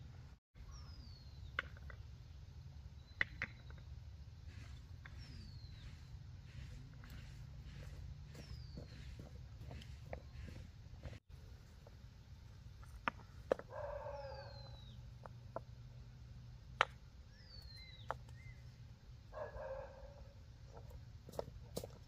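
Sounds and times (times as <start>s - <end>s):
steady low hum: 4.0s - 22.0s
animal call: 13.6s - 15.0s.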